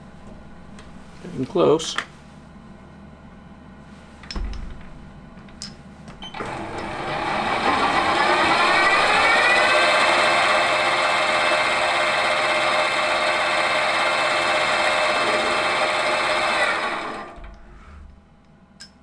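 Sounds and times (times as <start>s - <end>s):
metal lathe motor whine: 6.3s - 17.4s.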